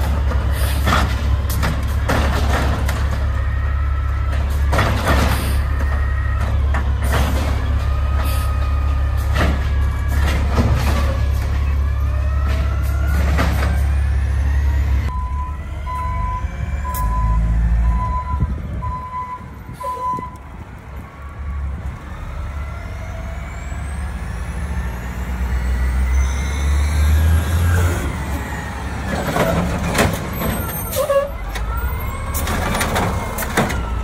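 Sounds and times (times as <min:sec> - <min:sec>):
garbage truck engine: 0:00.0 - 0:34.0
backup alarm beeping: 0:15.1 - 0:20.5
engine revving with whine: 0:21.7 - 0:30.8.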